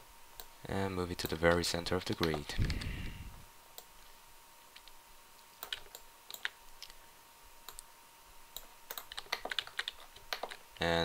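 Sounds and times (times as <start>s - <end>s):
mouse and keyboard clicks: 1.2s - 2.9s, 4.8s - 7.0s, 8.6s - 10.6s.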